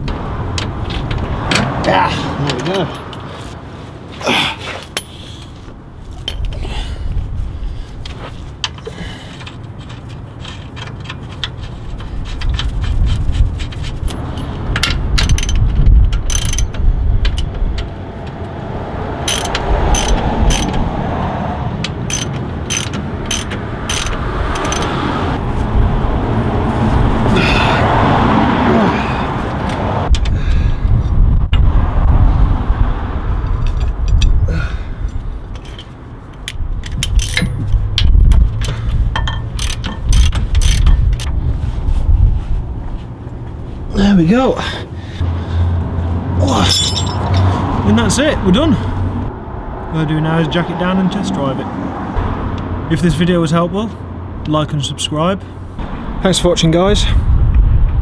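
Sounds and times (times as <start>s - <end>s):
metal tools clinking and scraping: 8.1s - 17.5s, 19.3s - 20.8s, 22.1s - 25.0s, 35.0s - 41.3s, 46.4s - 47.6s
ratchet spanner clicking: 8.6s - 17.9s, 19.2s - 20.8s, 21.8s - 25.0s, 35.1s - 41.3s.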